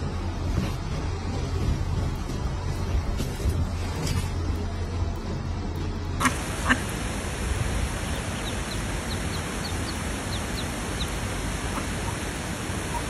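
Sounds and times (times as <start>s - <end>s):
ducklings peeping: 6.2s - 13.0s
steady hiss: 6.2s - 13.0s.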